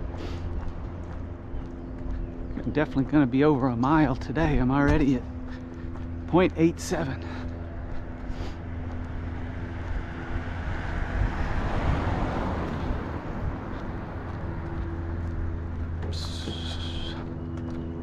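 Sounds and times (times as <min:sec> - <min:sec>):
steady low hum: 0:00.0 - 0:18.0
vehicle passing: 0:00.0 - 0:18.0.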